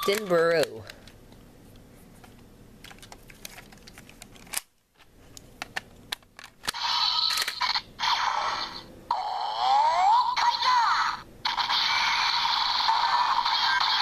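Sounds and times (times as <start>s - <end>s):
toy electronic sound effect: 6.7s - 14.0s.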